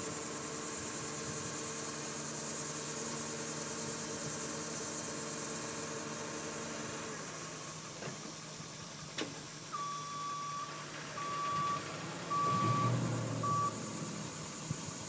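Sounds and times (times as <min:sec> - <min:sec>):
truck engine running: 0:00.0 - 0:15.0
backup alarm beeping: 0:09.8 - 0:13.8.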